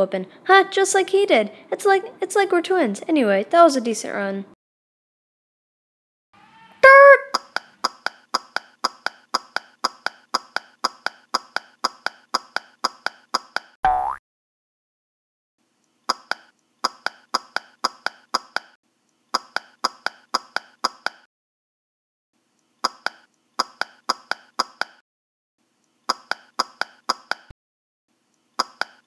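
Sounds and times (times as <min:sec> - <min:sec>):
footsteps as quick sharp ticks: 0:07.3 - 0:13.8, 0:16.1 - 0:21.3, 0:22.8 - 0:25.0, 0:26.1 - 0:27.5, 0:28.6 - 0:29.0.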